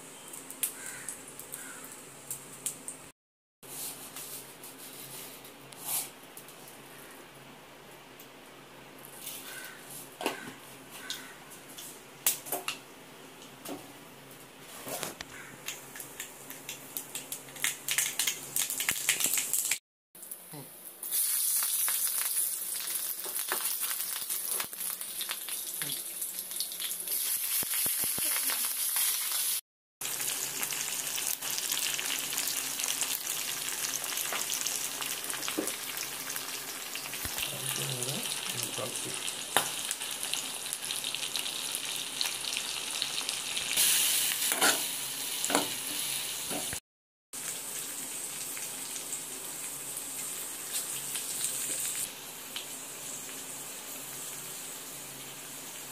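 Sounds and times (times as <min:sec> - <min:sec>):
oil sizzling in a pan: 0:15.6 - 0:46.8, 0:47.4 - 0:55.9.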